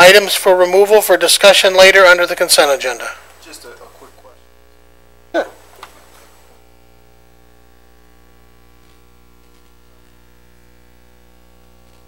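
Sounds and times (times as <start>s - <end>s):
electrical mains hum: 0.0s - 12.0s.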